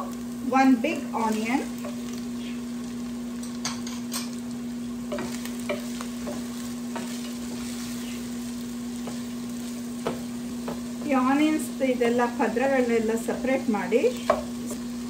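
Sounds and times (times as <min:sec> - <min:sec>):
onions sizzling in oil: 0:00.0 - 0:15.0
steady low hum: 0:00.0 - 0:15.0
wooden spatula scraping pan: 0:05.1 - 0:08.4.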